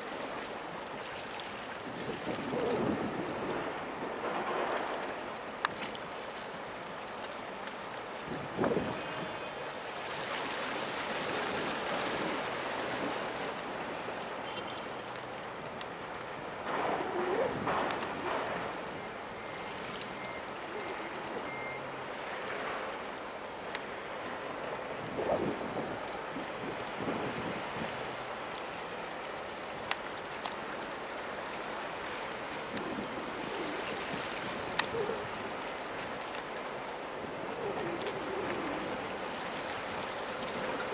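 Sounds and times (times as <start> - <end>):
water rushing: 0.0 - 40.9
wind: 0.0 - 40.9.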